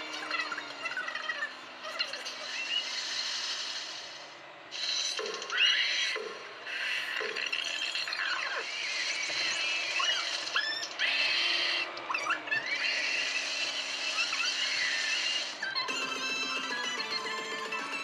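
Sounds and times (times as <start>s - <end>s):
high-pitched squeaky chirps: 7.5s - 18.0s.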